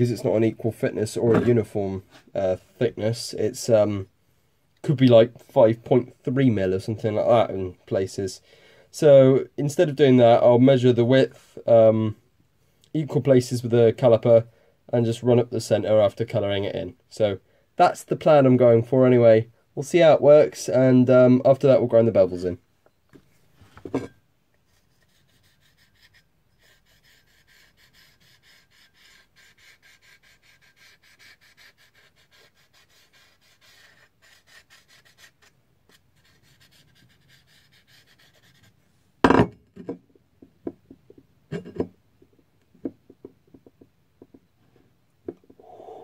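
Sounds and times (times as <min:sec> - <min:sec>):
marker scrubbing on steel: 0:24.7 - 0:38.8.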